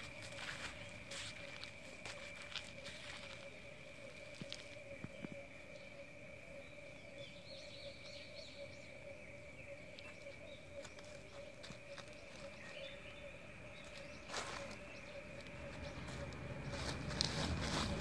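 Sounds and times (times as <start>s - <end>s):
sputtering rustle on dry leaves: 0.0s - 3.6s, 13.9s - 18.0s
frogs chorus: 0.0s - 18.0s.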